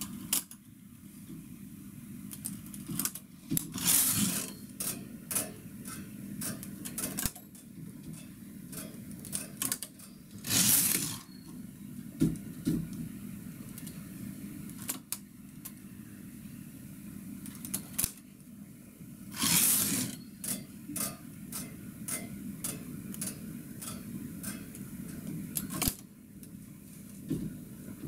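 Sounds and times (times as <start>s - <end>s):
knitting machine carriage rattling: 3.7s - 4.6s.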